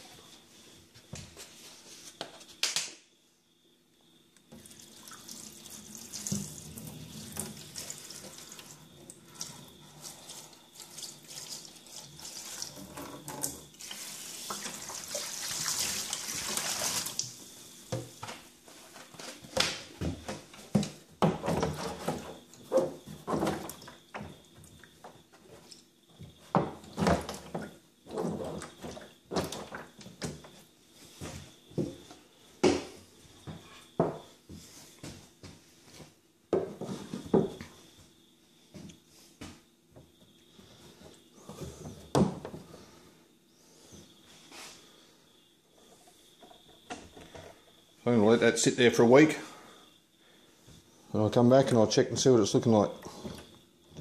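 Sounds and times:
liquid pouring into plastic tub: 4.5 - 17.4.

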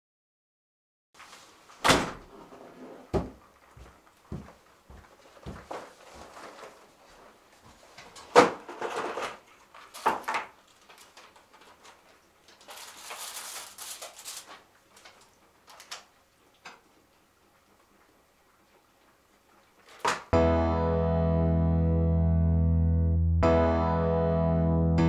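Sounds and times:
paper rustling: 5.2 - 16.1.

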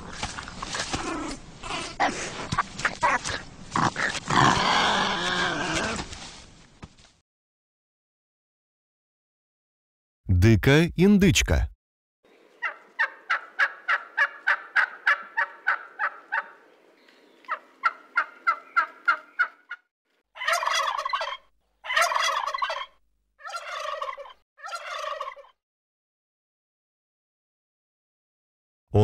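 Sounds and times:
turkey gobbling: 12.6 - 16.6, 17.5 - 19.8, 20.4 - 25.6.

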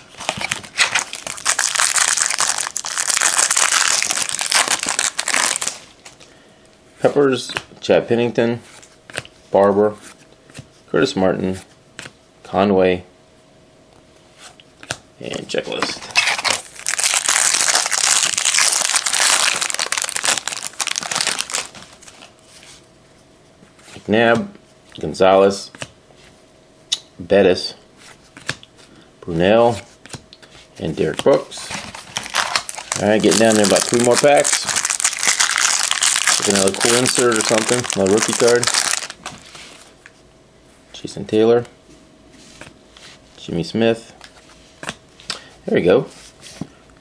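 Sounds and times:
foil wrapper crinkling: 0.0 - 5.9, 16.1 - 22.3, 31.9 - 39.9.

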